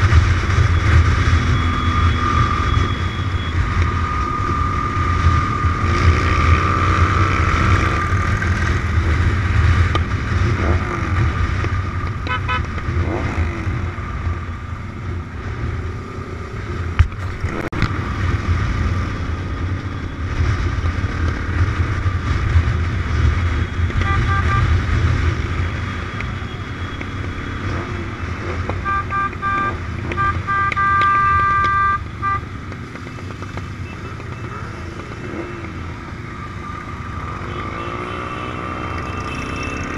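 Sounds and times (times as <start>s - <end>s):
motorcycle engines humming: 0.0s - 39.9s
horn short beeps: 12.3s - 12.7s, 23.9s - 24.8s, 28.8s - 32.5s.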